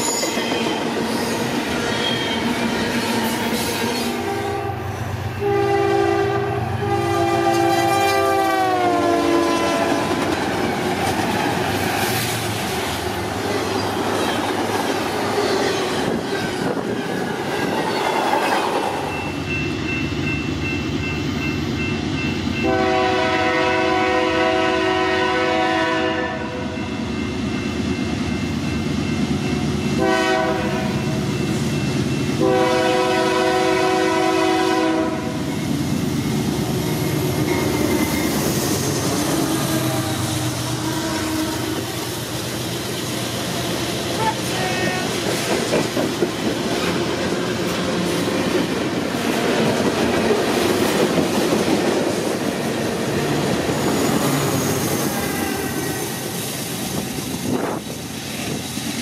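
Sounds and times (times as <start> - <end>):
diesel locomotive engine: 0.0 - 59.0
train horn blasts: 4.1 - 10.3, 22.6 - 26.8, 30.0 - 31.2, 32.4 - 35.4, 39.4 - 42.0, 55.0 - 56.3.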